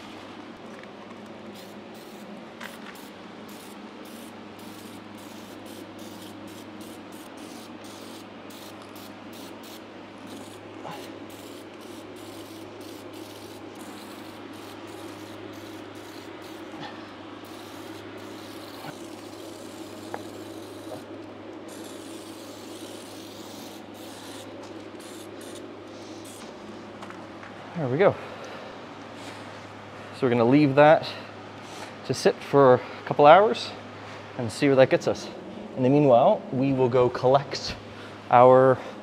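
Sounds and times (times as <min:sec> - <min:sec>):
aerosol can spraying: 0:01.5 - 0:21.1, 0:21.7 - 0:26.6.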